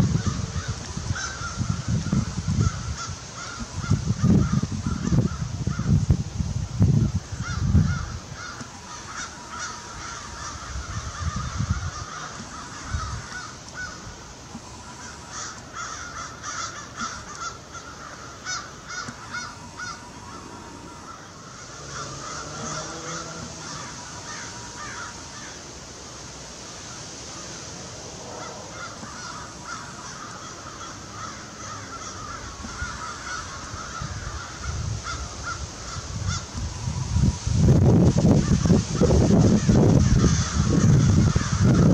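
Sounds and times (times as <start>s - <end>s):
crows cawing: 0.0s - 6.0s, 7.3s - 25.8s, 26.8s - 36.7s, 38.4s - 41.9s.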